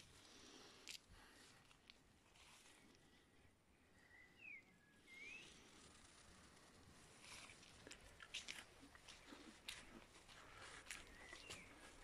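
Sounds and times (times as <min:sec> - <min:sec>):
faint chirps: 0:03.7 - 0:06.5.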